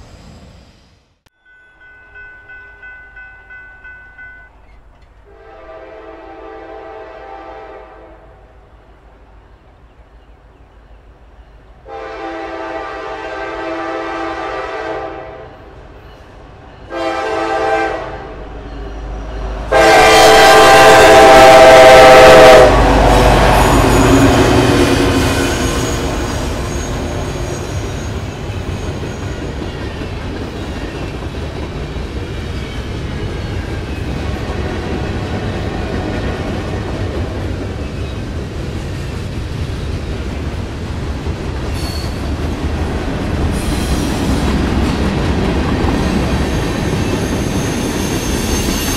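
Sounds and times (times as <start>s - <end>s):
train wheels rumbling: 1.9s - 48.9s
train horn blasts: 5.3s - 8.6s, 11.8s - 15.8s, 16.9s - 27.6s
freight cars clickety-clack: 23.3s - 48.9s.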